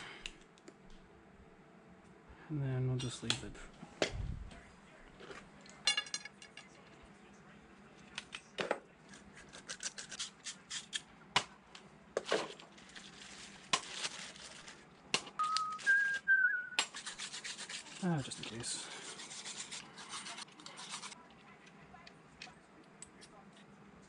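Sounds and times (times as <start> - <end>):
plastic rustling: 12.2 - 16.3.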